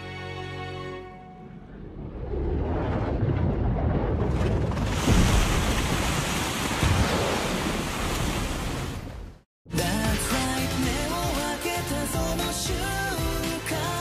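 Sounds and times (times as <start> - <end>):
deep rumble: 1.3 - 6.2
surging ocean waves: 1.3 - 9.4.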